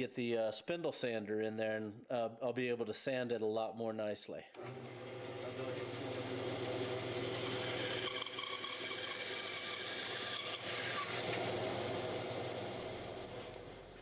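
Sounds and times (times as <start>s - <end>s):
band saw cutting wood: 4.6s - 14.0s.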